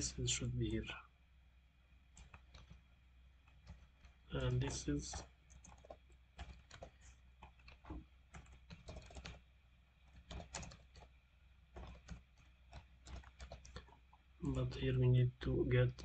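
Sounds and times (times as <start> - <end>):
typing on computer keyboard: 2.2 - 2.8, 3.5 - 9.4, 10.0 - 11.1, 11.8 - 14.8.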